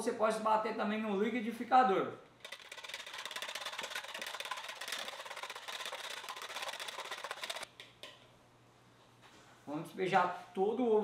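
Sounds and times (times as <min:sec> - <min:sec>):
whisk clicking against plastic bowl: 0:02.4 - 0:08.1.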